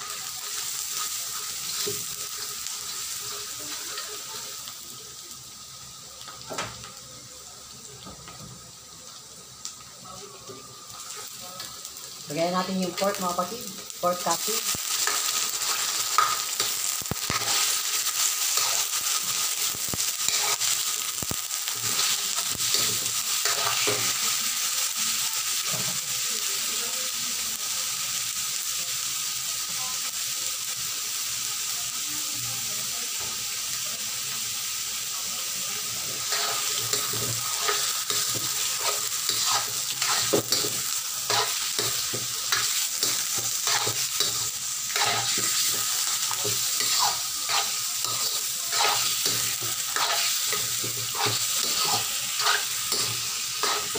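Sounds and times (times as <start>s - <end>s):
meat sizzling in hot oil: 0.0s - 53.9s
metal turner scraping wok: 36.2s - 53.9s.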